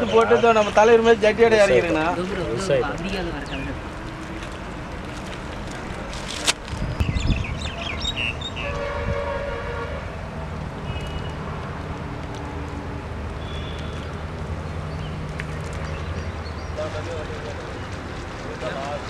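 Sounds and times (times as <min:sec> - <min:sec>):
held horn-like tone: 0:08.6 - 0:10.2.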